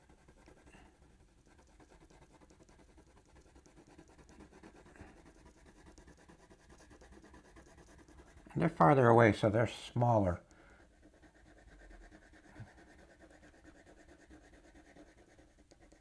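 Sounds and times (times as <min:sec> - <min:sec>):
pencil scratching on paper: 0:00.0 - 0:16.0.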